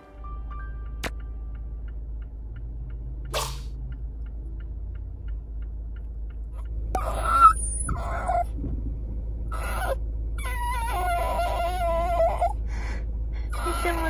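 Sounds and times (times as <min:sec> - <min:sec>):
car turn signal ticking: 0:00.8 - 0:09.4
dog whining: 0:07.0 - 0:08.6, 0:09.5 - 0:12.6, 0:13.5 - 0:14.0.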